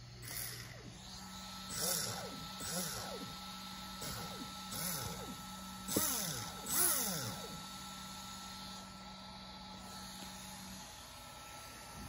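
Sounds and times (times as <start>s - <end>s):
electric motor revving whine: 0.0s - 12.0s
steady low hum: 0.0s - 12.0s.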